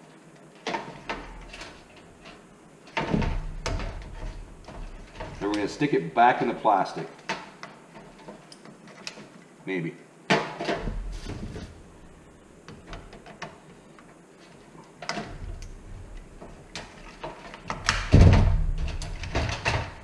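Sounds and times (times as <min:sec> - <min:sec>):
sheet-metal housing knocking: 0:03.0 - 0:05.6.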